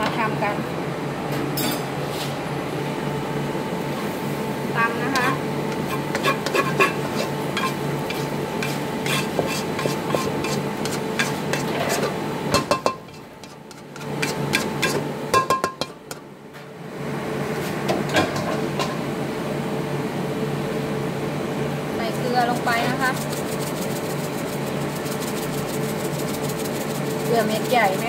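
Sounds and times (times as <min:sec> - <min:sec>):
steady hum: 0:00.0 - 0:28.0
wok tapped and scraped: 0:05.2 - 0:16.2.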